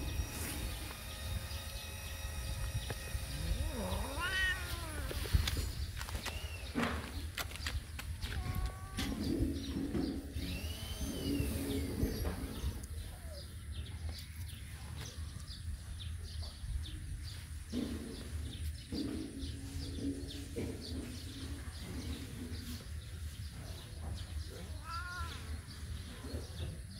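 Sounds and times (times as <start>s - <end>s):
birds chirping: 0.0s - 26.9s.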